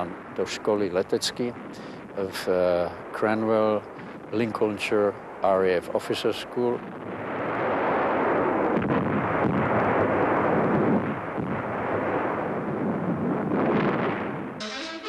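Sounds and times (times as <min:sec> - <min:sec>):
artillery fire and explosions: 0:00.0 - 0:14.7
sharp bangs: 0:13.7 - 0:15.0
music: 0:14.6 - 0:15.0.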